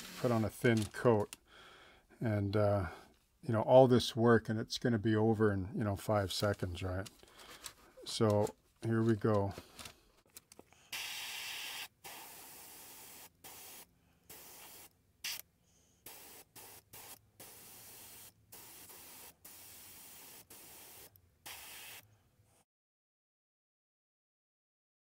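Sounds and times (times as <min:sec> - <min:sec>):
airbrush spraying hiss: 0:00.0 - 0:00.4, 0:10.9 - 0:15.4, 0:16.0 - 0:22.0.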